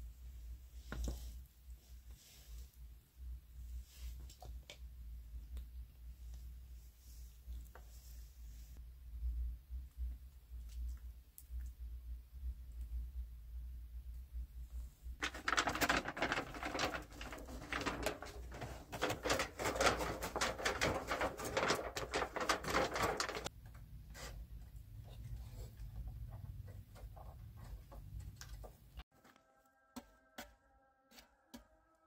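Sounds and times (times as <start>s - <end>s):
aluminium foil crinkling: 15.2s - 23.5s.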